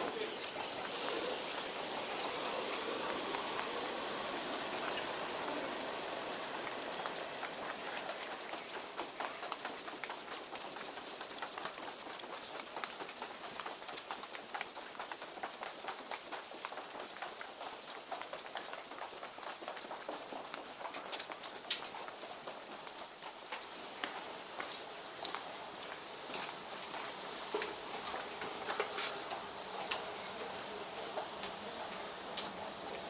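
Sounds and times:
footsteps on tiled floor: 0.0 - 33.0.

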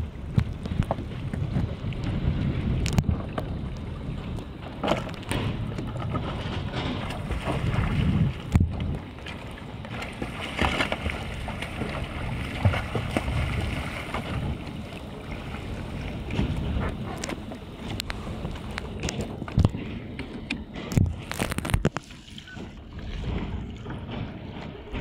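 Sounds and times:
water splashing and sloshing: 0.0 - 25.0
wind buffeting microphone: 0.0 - 25.0.

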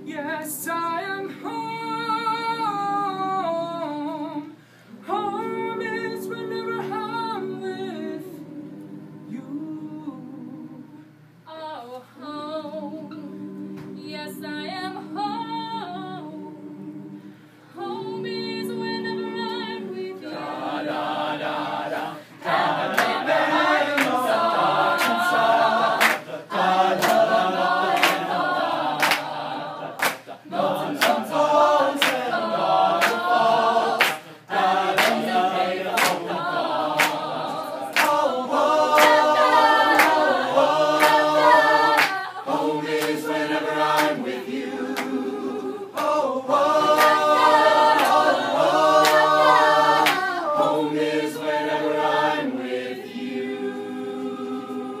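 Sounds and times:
a cappella group singing: 0.0 - 55.0
hand claps: 22.9 - 23.2, 23.9 - 24.3, 24.9 - 26.4, 27.0 - 27.3, 27.9 - 28.4, 29.0 - 29.3, 30.0 - 31.3, 32.0 - 32.4, 33.0 - 33.4, 34.0 - 34.3, 34.9 - 36.3, 37.0 - 37.3, 37.9 - 42.2, 42.9 - 43.3, 43.9 - 44.4, 45.0 - 45.2, 46.0 - 46.2, 46.8 - 50.3.

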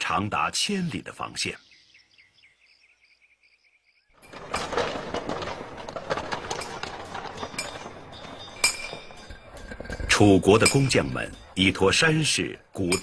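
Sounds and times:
steady bustle: 4.2 - 13.0.

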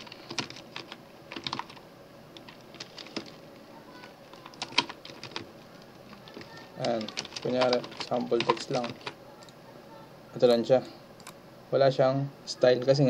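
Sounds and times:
keyboard typing: 0.0 - 9.6.

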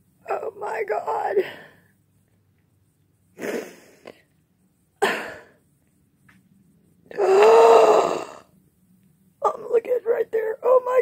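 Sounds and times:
woman moaning: 7.1 - 8.4.

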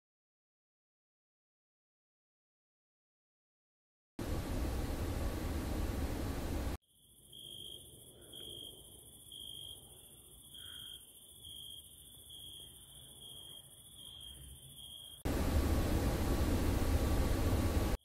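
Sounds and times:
continuous high insect trill: 6.8 - 15.3
cricket chirping: 6.8 - 15.3.

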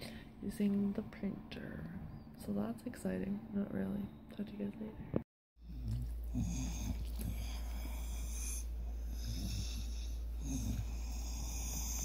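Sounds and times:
steady low hum: 0.0 - 12.0
snoring-like breathing: 5.6 - 12.0.

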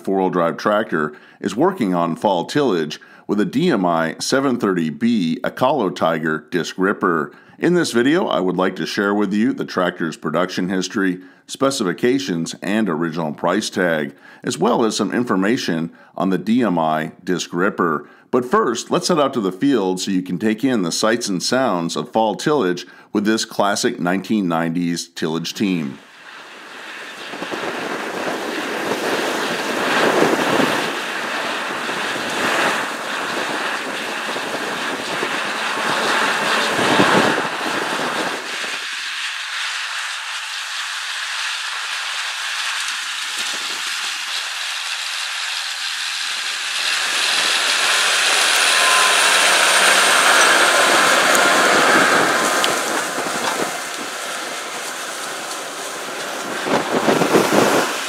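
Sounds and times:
ripper disks cutting soil: 42.7 - 58.0
tractor diesel engine under load: 46.0 - 57.9.

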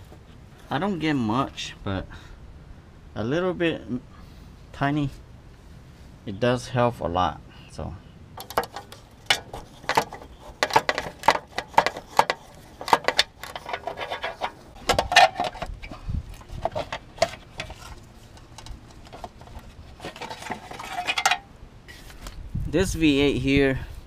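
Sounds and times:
tools and metal parts clinking: 8.4 - 21.5.

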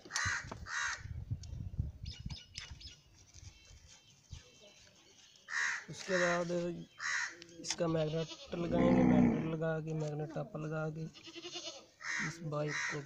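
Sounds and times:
animal bleats: 7.0 - 9.6, 11.0 - 13.0.

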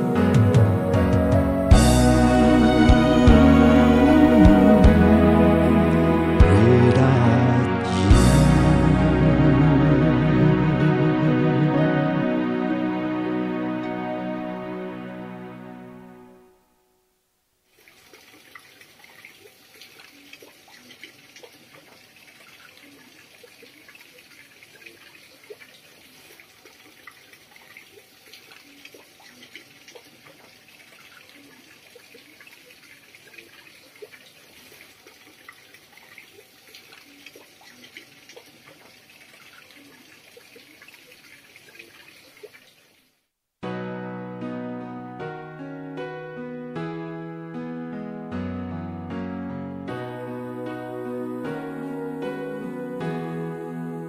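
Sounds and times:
water trickling and dripping: 17.6 - 43.3.

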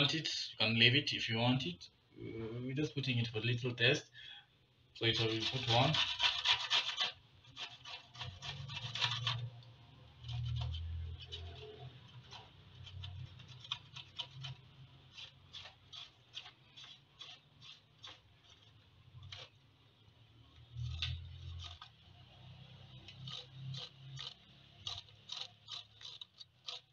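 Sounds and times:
pepper grated on metal grater: 5.0 - 19.6, 20.7 - 22.0, 22.9 - 26.9.

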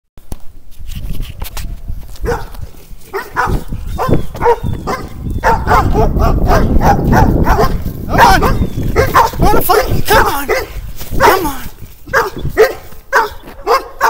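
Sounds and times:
dogs barking aggressively: 2.2 - 14.0.

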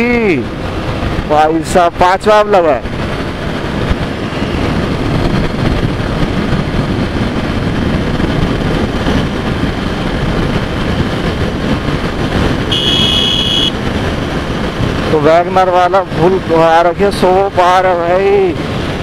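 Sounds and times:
wind rush on microphone: 0.0 - 19.0
motorcycle engine running hard: 2.6 - 16.6.

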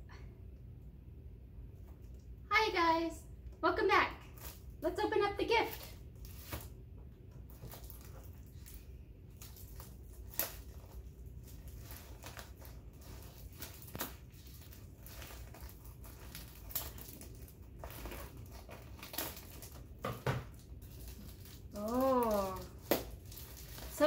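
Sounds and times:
foil wrapping crinkling: 5.4 - 6.8, 7.4 - 24.0.

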